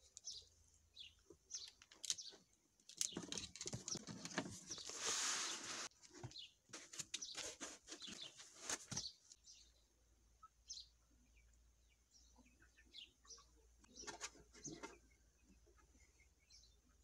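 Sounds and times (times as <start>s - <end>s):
foam packaging rustling: 3.1s - 9.1s.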